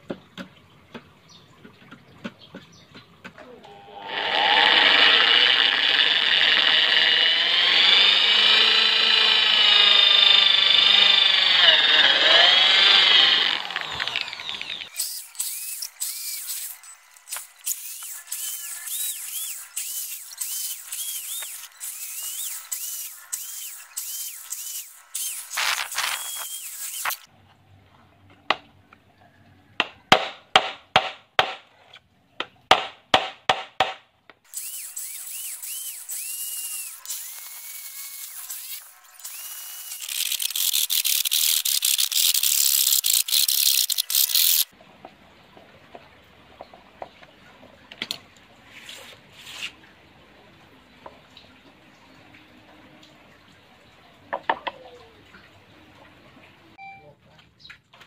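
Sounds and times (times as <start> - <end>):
electric drill boring into wood: 3.7 - 27.3, 34.5 - 44.7.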